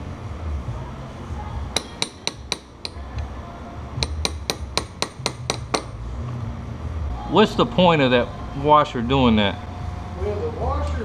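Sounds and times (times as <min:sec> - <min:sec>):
hammer tapping steel punch: 0:01.7 - 0:03.3, 0:04.0 - 0:06.0.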